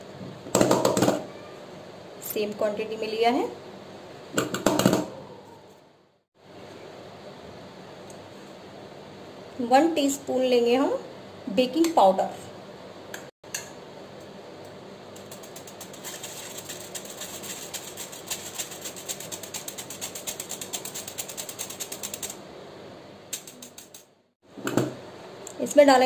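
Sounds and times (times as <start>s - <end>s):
metal sieve rattling: 15.2s - 22.3s.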